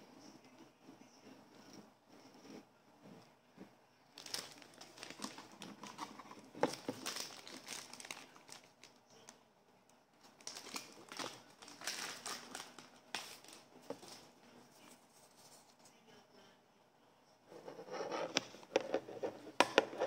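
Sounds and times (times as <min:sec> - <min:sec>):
plastic toy rustling and crinkling: 0:04.2 - 0:09.4, 0:10.2 - 0:15.9.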